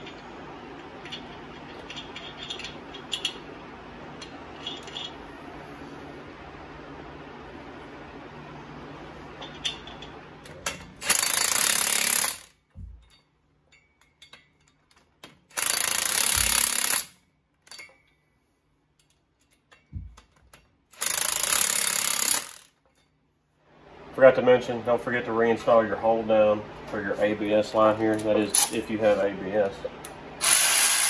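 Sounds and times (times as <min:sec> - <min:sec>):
impact wrench hammering: 0:11.0 - 0:13.2, 0:15.2 - 0:17.2, 0:21.0 - 0:22.8.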